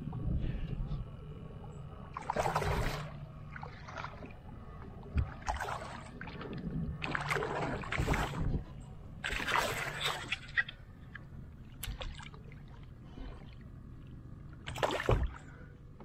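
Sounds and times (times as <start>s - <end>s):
water rumbling against hull: 0.0s - 16.0s
fish splashing and thrashing: 2.1s - 13.7s, 14.6s - 15.7s.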